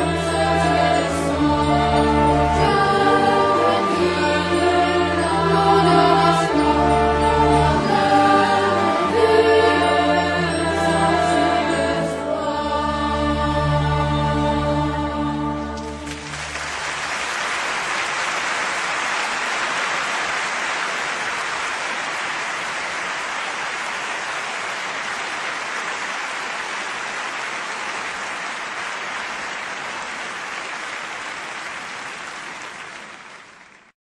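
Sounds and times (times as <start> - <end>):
heavy rain hissing: 15.9 - 33.9.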